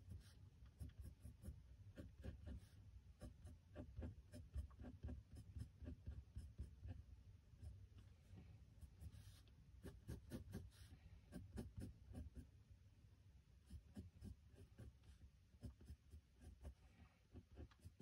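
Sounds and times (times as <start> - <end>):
pencil sketching on paper: 0.0 - 12.5, 13.6 - 18.0.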